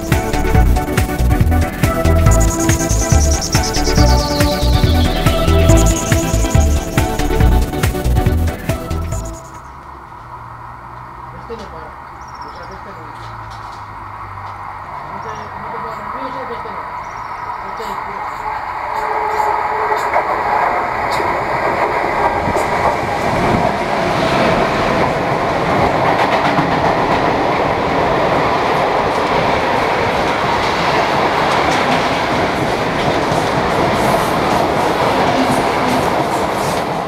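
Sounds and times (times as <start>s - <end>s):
freight train wheels rumbling: 0.0s - 10.4s, 15.1s - 37.0s
wheels clickety-clack: 19.0s - 37.0s.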